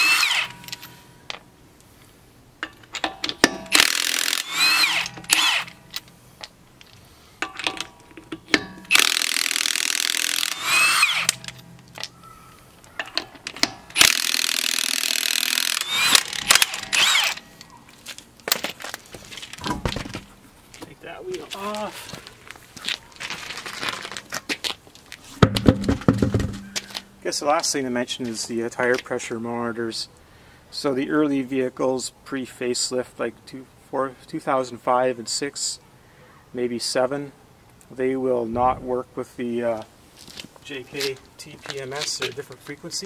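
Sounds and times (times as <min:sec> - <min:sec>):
impact wrench whining: 0:00.0 - 0:01.0, 0:03.0 - 0:06.1, 0:08.5 - 0:12.1, 0:13.0 - 0:17.7, 0:25.4 - 0:27.1.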